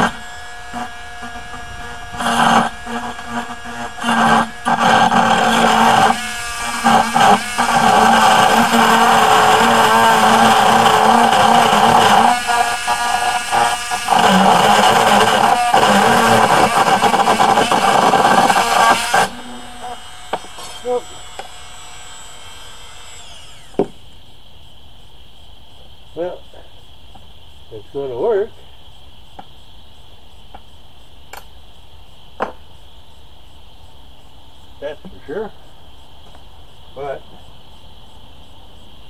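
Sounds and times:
rotary tool cutting metal: 0:00.0 - 0:23.8.

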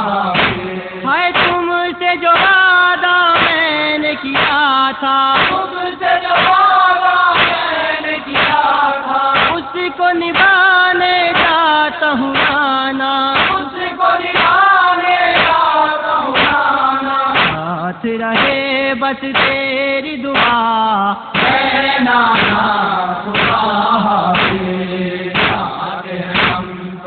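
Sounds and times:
man chanting a lament: 0:00.0 - 0:27.0
steady beat: 0:00.3 - 0:01.7, 0:02.3 - 0:02.7, 0:03.4 - 0:03.6, 0:04.4 - 0:04.6, 0:05.4 - 0:07.6, 0:08.3 - 0:08.7, 0:09.4 - 0:10.7, 0:11.3 - 0:11.6, 0:12.4 - 0:12.7, 0:13.4 - 0:14.7, 0:15.3 - 0:15.7, 0:16.4 - 0:16.8, 0:17.4 - 0:17.7, 0:18.4 - 0:18.6, 0:19.4 - 0:19.7, 0:20.4 - 0:20.7, 0:21.4 - 0:27.0.

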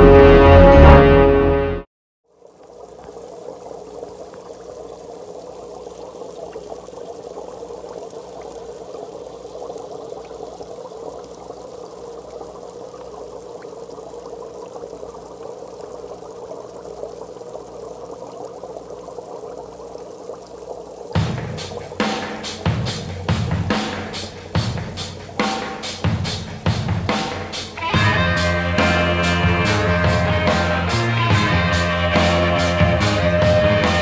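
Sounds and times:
aquarium water rushing and bubbling: 0:02.2 - 0:34.0
low hum: 0:27.8 - 0:34.0.

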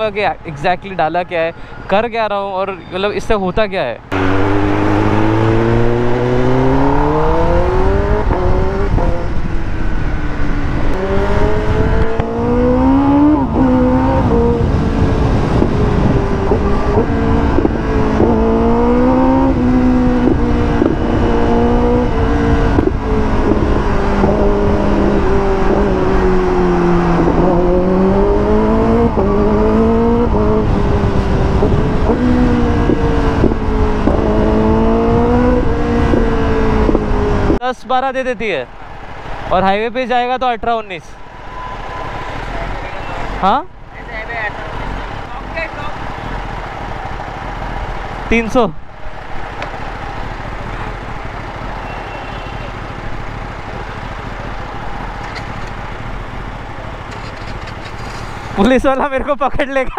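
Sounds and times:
motorcycle engine revving: 0:04.1 - 0:37.6, 0:41.5 - 0:58.8
wind on microphone: 0:04.5 - 0:37.6.

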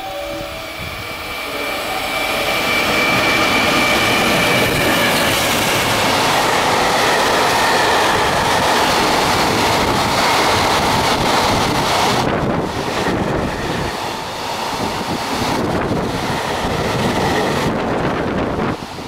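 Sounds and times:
electric locomotive whine: 0:00.0 - 0:19.0
train wheels rumbling: 0:00.0 - 0:19.0.

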